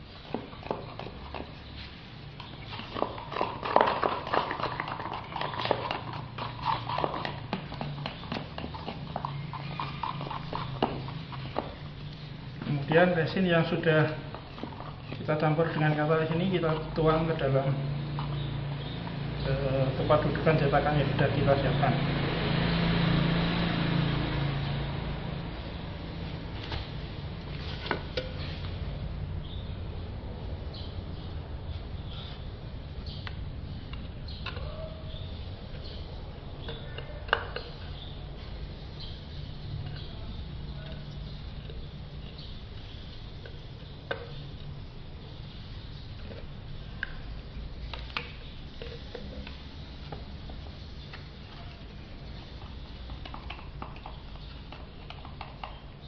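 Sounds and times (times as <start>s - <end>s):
background hiss: 37.4s - 53.5s.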